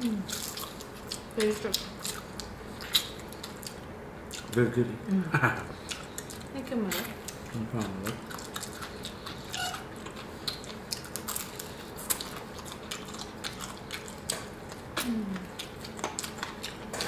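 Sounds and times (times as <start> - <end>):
people chewing crispy chicken: 0.0 - 4.8, 5.4 - 6.6, 7.2 - 17.0.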